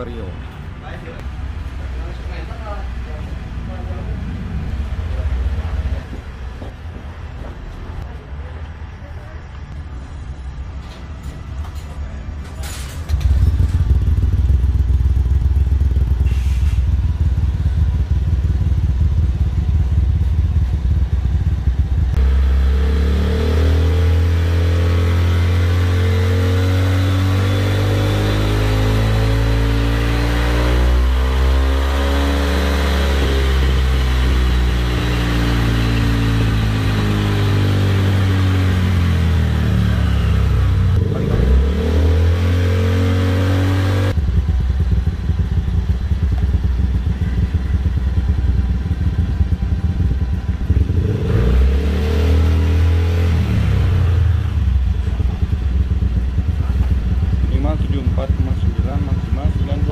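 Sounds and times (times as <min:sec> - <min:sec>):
scooter engine revving: 0:13.1 - 0:16.2, 0:16.9 - 0:59.9.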